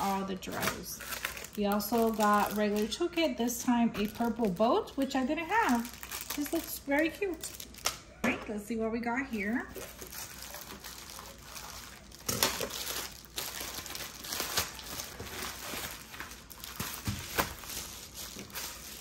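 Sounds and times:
plastic mailer crinkling: 0.0 - 8.0, 9.7 - 19.0
sharp plastic crackles: 0.0 - 8.0, 9.7 - 19.0.

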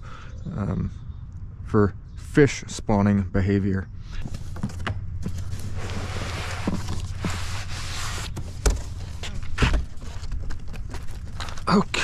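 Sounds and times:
cardboard rustling and scraping: 4.2 - 12.0.

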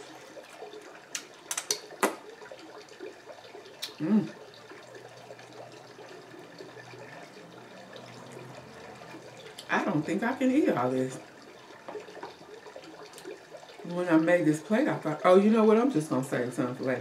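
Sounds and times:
wet chewing: 3.8 - 4.4
person humming: 3.9 - 4.4.

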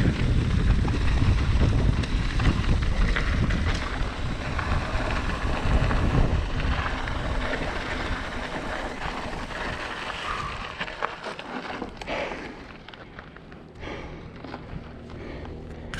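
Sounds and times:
wind buffeting microphone: 0.0 - 10.8
bike tyres rolling on gravel: 0.0 - 15.9.

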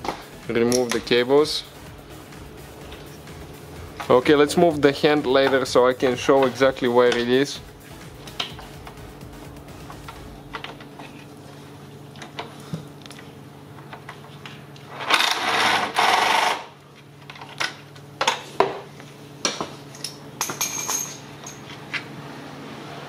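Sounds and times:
cordless impact tool running: 15.1 - 16.7.

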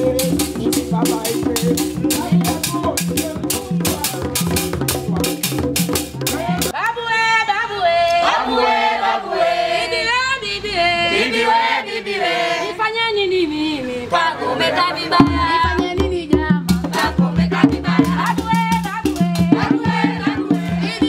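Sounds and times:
group of voices singing: 0.0 - 6.8, 7.6 - 13.0, 13.8 - 21.0
hand drums beating: 0.0 - 6.8, 15.2 - 21.0.

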